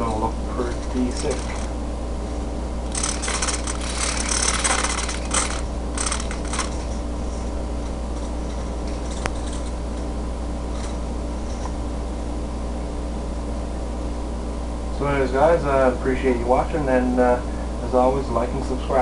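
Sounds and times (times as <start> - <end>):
steady low hum: 0.0 - 19.0
scratchy rustling and rubbing: 2.9 - 7.5.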